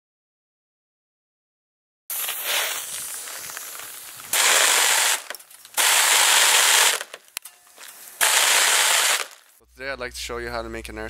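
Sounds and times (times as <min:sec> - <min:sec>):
compressed air blasting: 0:02.1 - 0:07.2, 0:08.0 - 0:09.5.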